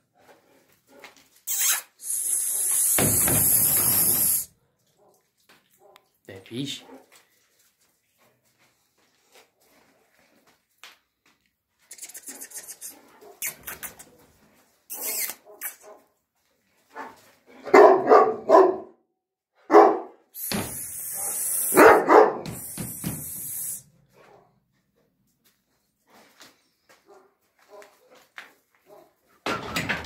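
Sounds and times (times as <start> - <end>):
dog barking: 5.0 - 6.1, 6.8 - 7.2, 12.3 - 13.5, 16.9 - 19.0, 19.6 - 20.2, 21.1 - 22.6, 27.0 - 28.2, 28.8 - 29.2.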